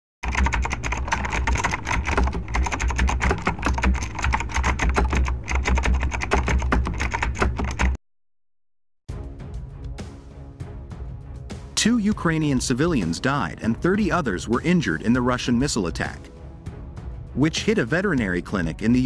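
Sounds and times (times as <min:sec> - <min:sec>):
rapid keyboard typing: 0:00.2 - 0:08.0.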